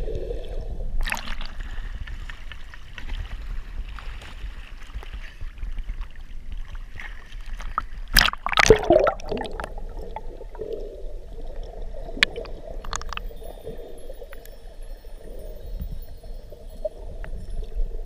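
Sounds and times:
splash and gurgle: 0:01.0 - 0:10.7, 0:11.5 - 0:14.2
sea water sloshing: 0:01.0 - 0:14.8.

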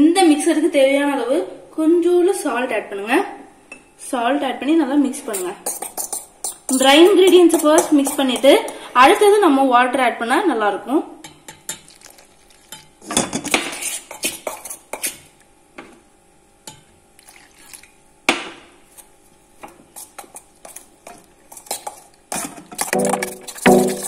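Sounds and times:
fork scraping metal pot: 0:05.3 - 0:08.6, 0:13.4 - 0:15.3, 0:20.0 - 0:24.0.

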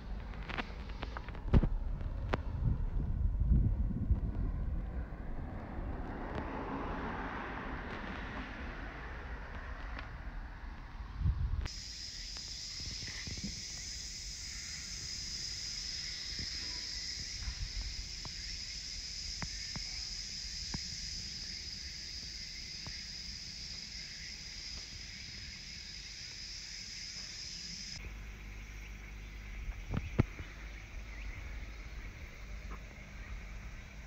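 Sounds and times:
low rumble: 0:00.0 - 0:11.7
insects calling: 0:04.6 - 0:34.0.

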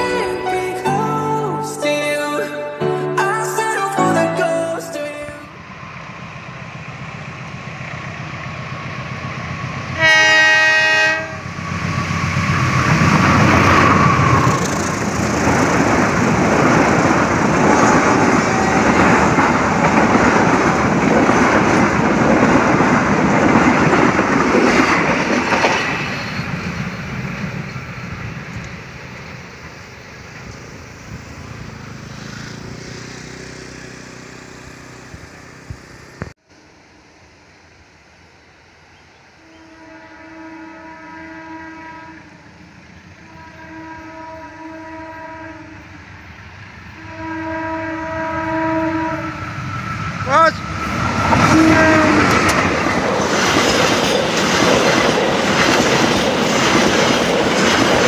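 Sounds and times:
train horn: 0:10.0 - 0:12.1, 0:39.4 - 0:42.6, 0:43.2 - 0:46.0, 0:46.9 - 0:49.6, 0:51.3 - 0:52.6
train wheels clattering over rail joints: 0:12.5 - 0:30.9, 0:52.2 - 0:58.0.

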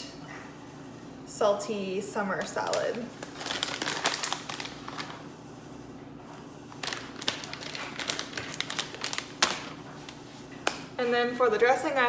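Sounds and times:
plastic snack pouch crinkling: 0:02.6 - 0:05.2, 0:06.7 - 0:10.2.

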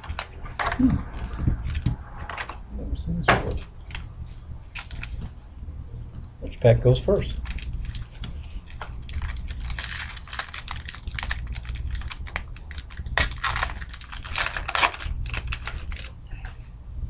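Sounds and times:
steady low hum: 0:00.0 - 0:17.0
foil wrapper tearing and crinkling: 0:04.7 - 0:05.2, 0:07.3 - 0:16.2.

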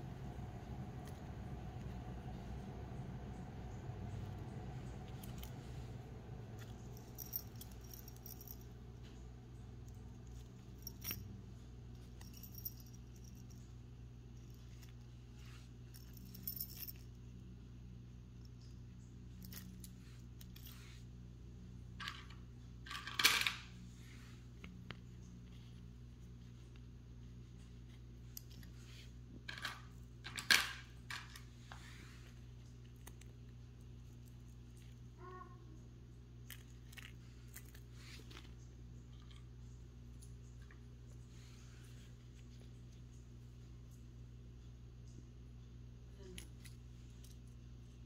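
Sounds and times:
steady low hum: 0:00.0 - 0:48.0
metal earrings clinking: 0:06.5 - 0:08.8, 0:09.8 - 0:13.7, 0:15.8 - 0:17.2, 0:19.3 - 0:20.8.

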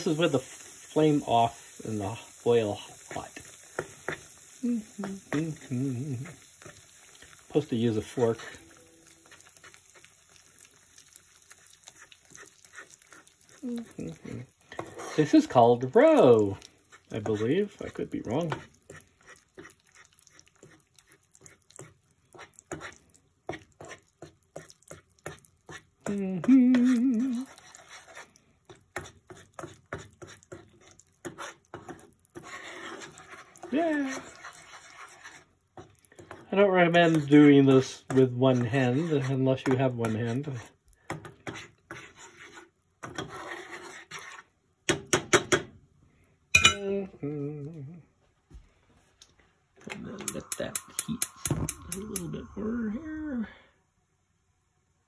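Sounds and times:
spoon stirring in saucepan: 0:00.0 - 0:45.7, 0:49.3 - 0:52.8
metal spoon scraping saucepan: 0:41.4 - 0:44.5
short wavering voice: 0:51.8 - 0:53.6.

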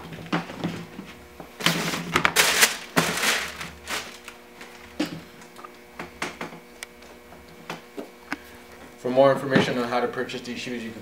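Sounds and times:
packaging rustling and crinkling: 0:01.6 - 0:04.8.

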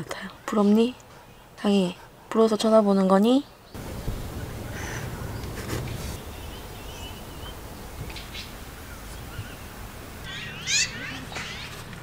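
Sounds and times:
steady low rumble: 0:03.8 - 0:10.2.

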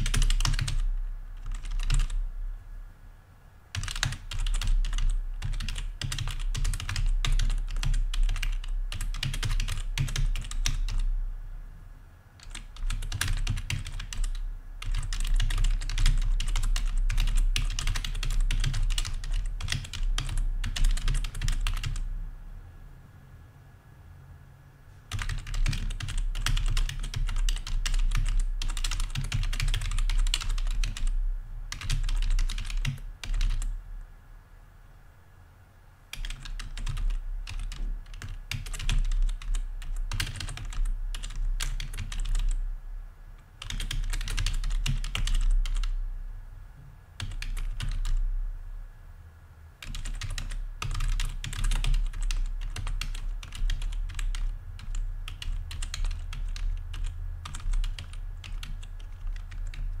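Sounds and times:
fast typing on keyboard: 0:00.0 - 0:02.2, 0:03.7 - 0:11.1, 0:12.4 - 0:22.1, 0:25.1 - 0:33.8, 0:36.1 - 0:42.6, 0:43.6 - 0:46.0, 0:47.2 - 0:48.2, 0:49.8 - 1:00.0.

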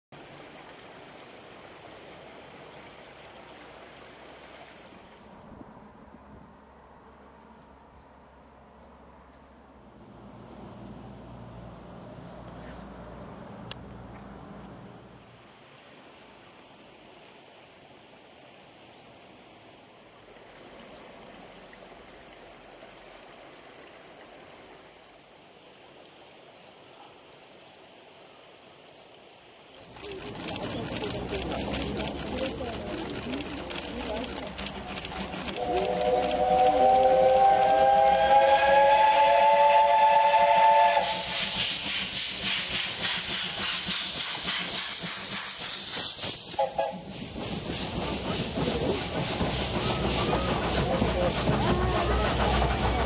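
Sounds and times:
river water rushing: 0:00.2 - 0:06.1, 0:10.0 - 0:39.5.

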